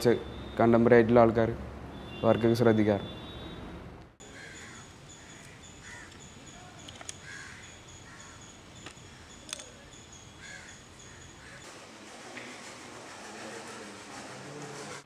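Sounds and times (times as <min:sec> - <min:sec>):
crows cawing: 0:04.2 - 0:06.2, 0:07.2 - 0:09.3, 0:10.4 - 0:11.6
sharp clicks: 0:06.8 - 0:07.2, 0:08.8 - 0:09.7.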